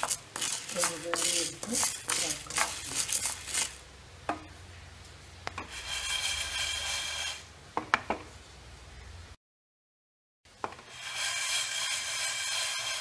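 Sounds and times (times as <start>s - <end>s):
lentils rattling in frying pan: 0.0s - 3.8s.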